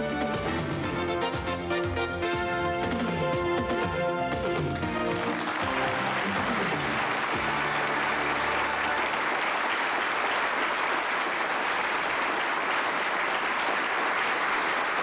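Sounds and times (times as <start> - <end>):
theme music: 0.0 - 9.7
studio audience applauding: 0.2 - 15.0.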